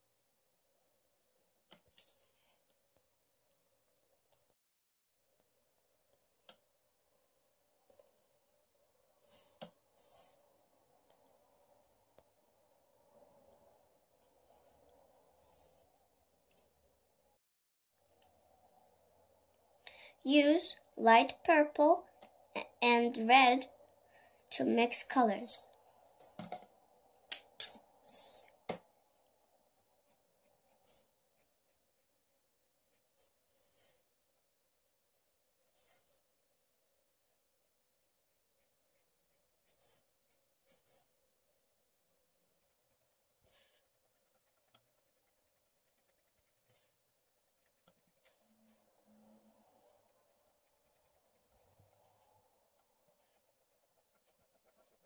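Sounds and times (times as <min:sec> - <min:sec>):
marker scratching while colouring: 0:09.2 - 0:10.5, 0:14.2 - 0:16.7, 0:27.6 - 0:28.6, 0:29.7 - 0:34.2, 0:35.6 - 0:36.3, 0:37.3 - 0:41.2, 0:42.5 - 0:49.0, 0:49.8 - 0:55.0
marker clicking on paper: 0:27.3 - 0:28.9, 0:42.6 - 0:48.5
marker tip scratching on paper: 0:49.8 - 0:52.1.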